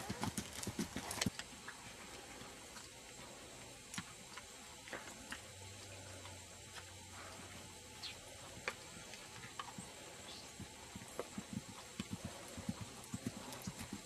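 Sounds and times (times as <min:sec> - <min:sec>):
horse hoofbeats on turf: 0:00.0 - 0:01.4, 0:09.4 - 0:14.0
faint steady hiss: 0:00.0 - 0:14.0.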